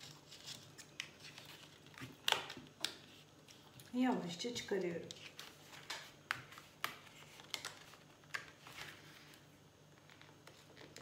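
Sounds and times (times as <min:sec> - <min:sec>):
paper rustling: 0:05.1 - 0:11.0.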